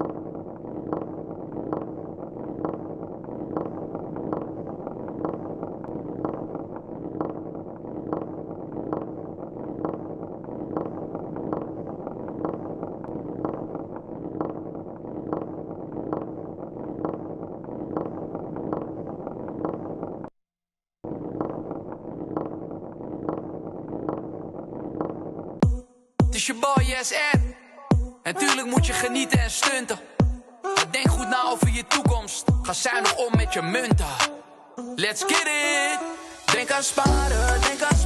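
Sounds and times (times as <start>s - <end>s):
marbles rolling on track: 0.0s - 20.3s, 21.1s - 25.6s
regular clicks: 0.0s - 20.4s, 31.9s - 32.2s.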